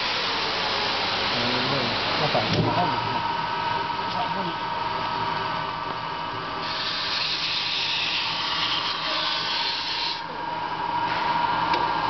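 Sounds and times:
brake lathe whine: 1.6 - 12.0
cutting tool scraping hiss: 6.6 - 10.2.

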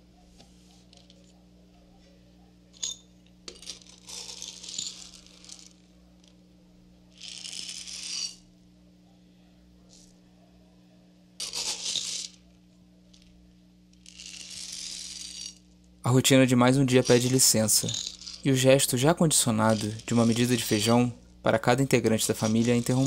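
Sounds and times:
low steady hum: 0.0 - 23.0
dried beans rattling: 16.6 - 23.0.

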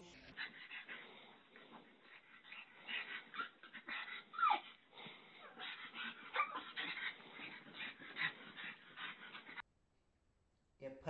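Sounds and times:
dog whining: 2.1 - 9.6.

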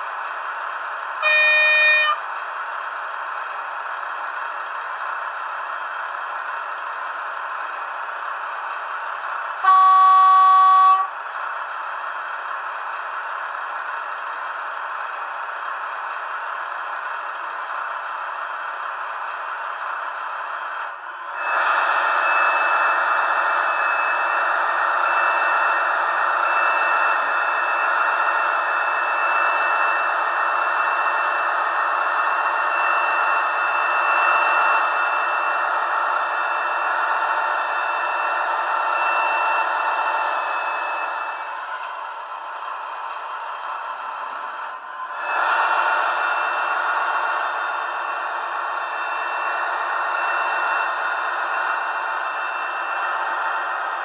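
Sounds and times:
horn blasts: 1.2 - 2.3, 9.6 - 11.2
high whine: 1.2 - 2.4, 9.5 - 11.3, 21.1 - 54.0.

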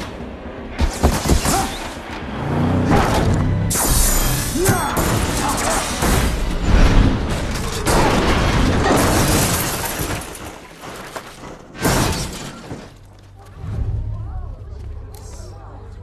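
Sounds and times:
glass shattering: 3.7 - 11.1.

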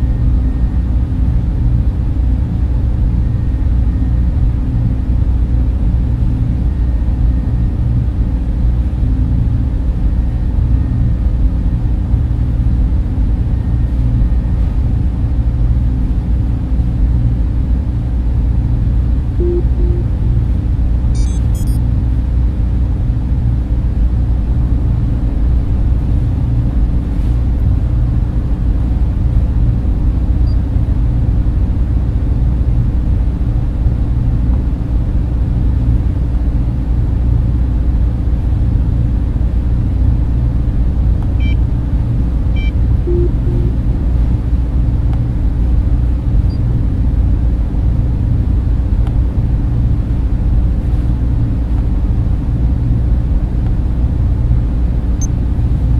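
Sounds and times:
deep rumbling machinery drone: 0.0 - 55.9
faint short electronic tones: 19.4 - 20.2, 21.1 - 21.8, 42.6 - 43.8.

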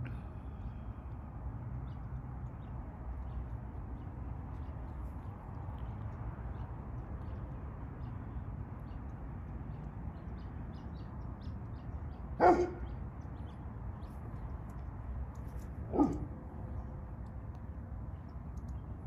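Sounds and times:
dog barking: 12.4 - 12.9, 15.9 - 16.3.

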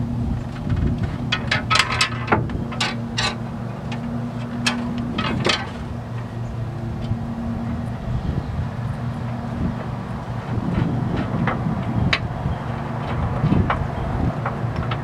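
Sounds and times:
steady low hum: 0.0 - 15.0
metal clinks and knocks: 0.6 - 6.3.

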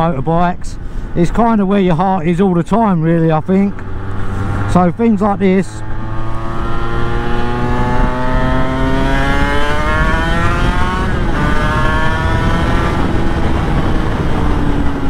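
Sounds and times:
motorcycle engine accelerating: 3.6 - 15.0
wind on microphone: 5.9 - 15.0.

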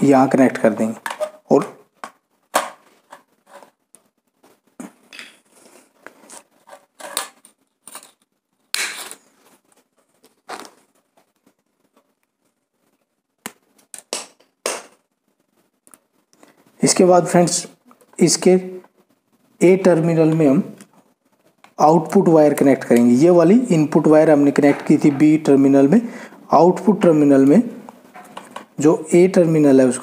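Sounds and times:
wires scraping and rustling: 2.8 - 13.9, 27.1 - 28.9.

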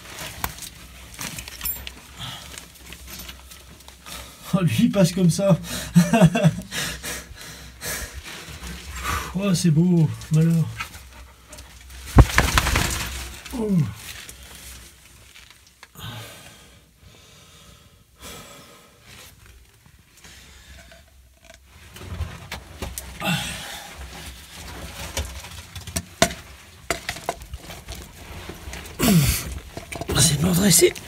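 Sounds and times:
clothing scraping against rock: 10.3 - 15.7, 23.9 - 25.8, 27.4 - 31.0.

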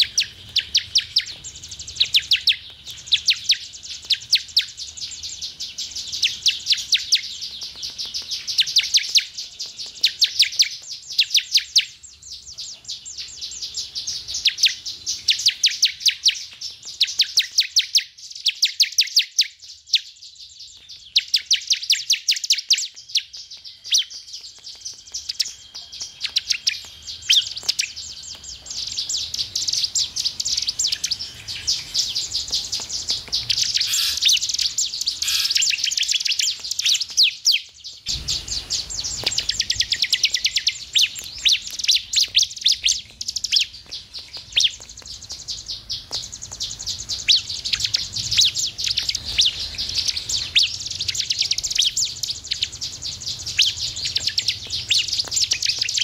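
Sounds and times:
bird singing fast high notes: 33.6 - 36.2, 38.1 - 41.2.

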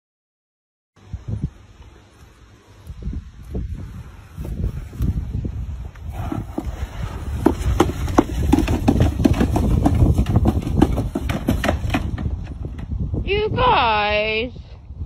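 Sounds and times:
plastic sled scraping: 6.0 - 12.7
sled knocking on edges: 6.2 - 12.9.

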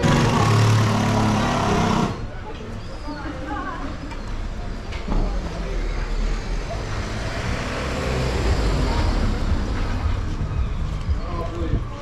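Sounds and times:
van engine driving past: 5.6 - 11.0.

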